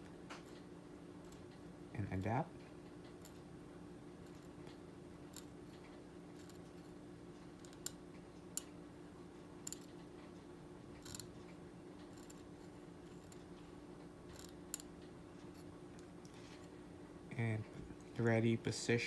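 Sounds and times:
low steady hum: 0.0s - 19.0s
metal scaler ticking on plastic teeth: 11.0s - 12.4s, 14.3s - 15.6s.

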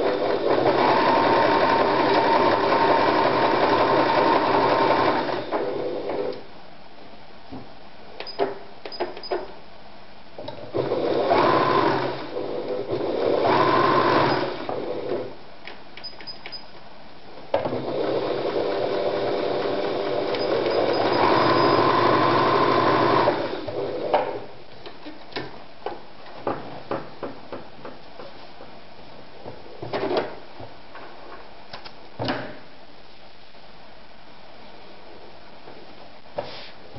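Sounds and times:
sewing machine stitching: 0.0s - 6.3s, 10.5s - 15.3s, 17.6s - 24.4s.

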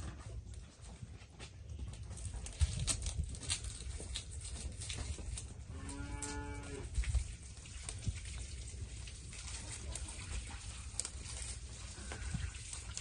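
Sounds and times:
light clicks and crackles: 0.0s - 13.0s
cow mooing: 5.7s - 6.9s.

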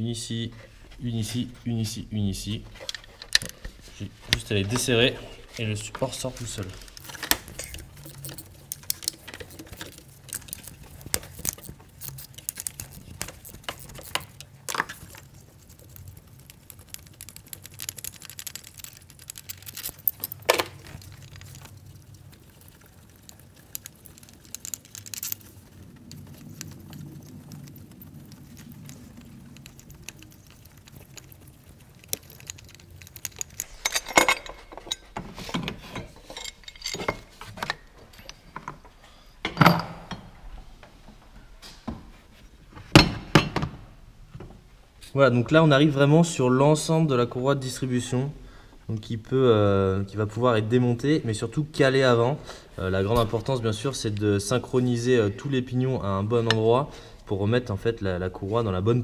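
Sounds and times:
faint low hum: 0.0s - 59.0s
metal tools clinking and rattling: 4.4s - 15.4s, 17.7s - 21.8s, 23.8s - 25.7s, 32.0s - 40.4s.

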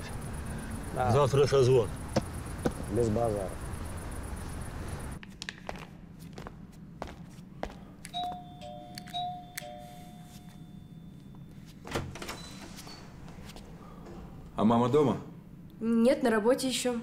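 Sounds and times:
two-note doorbell chime: 8.2s - 11.6s.

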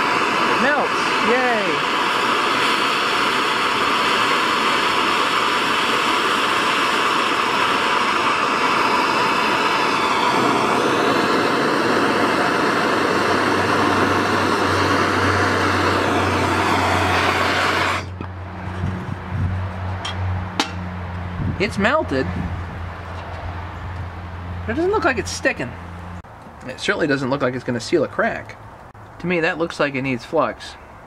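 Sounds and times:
gas torch flame hissing: 0.0s - 19.5s.

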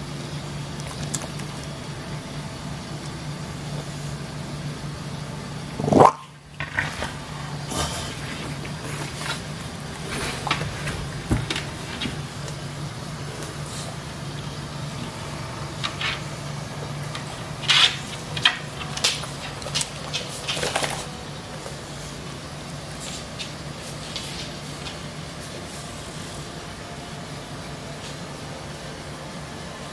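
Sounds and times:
electric fan humming: 0.0s - 29.9s
dog snorting and snuffling: 5.8s - 12.4s.

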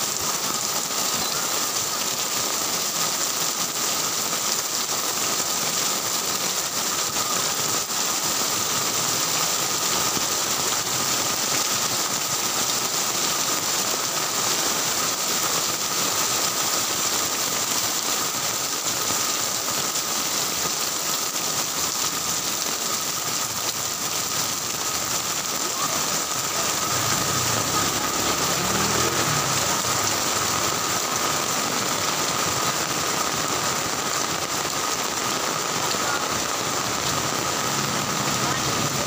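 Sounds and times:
heavy rain hiss: 0.0s - 39.0s
vehicle engine rumble: 23.6s - 32.3s.

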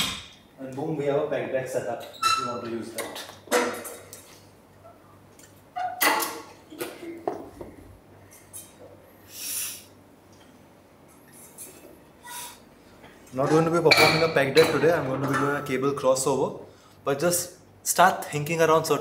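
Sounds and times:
short hiss: 9.3s - 9.9s.

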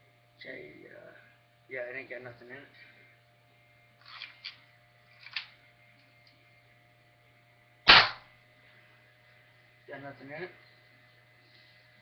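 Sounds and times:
air rifle shot: 7.9s - 8.3s.

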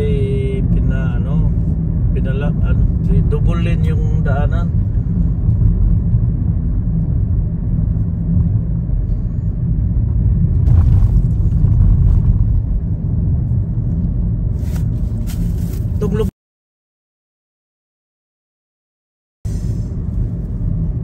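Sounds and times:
car tyre and engine rumble: 0.0s - 16.3s, 19.5s - 21.0s.

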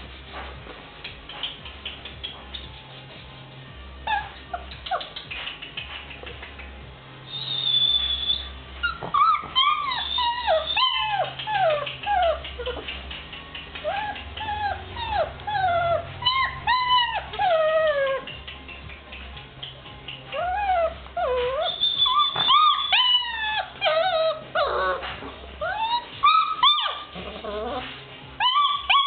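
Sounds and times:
puppies whimpering and whining: 4.0s - 5.4s, 7.2s - 18.4s, 20.2s - 29.0s.

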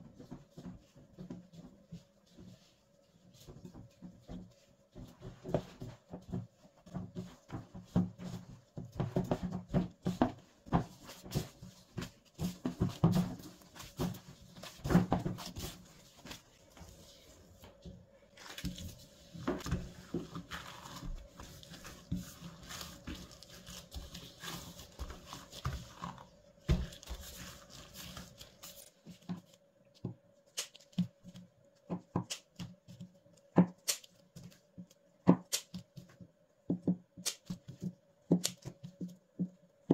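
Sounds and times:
hands squishing bread dough: 0.0s - 39.9s
scissors cutting dough: 35.4s - 35.8s, 38.4s - 38.7s.

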